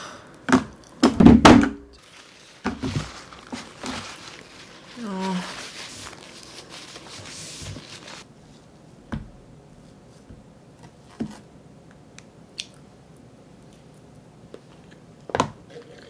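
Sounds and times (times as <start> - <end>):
tissue rustling and crumpling: 2.0 - 8.3.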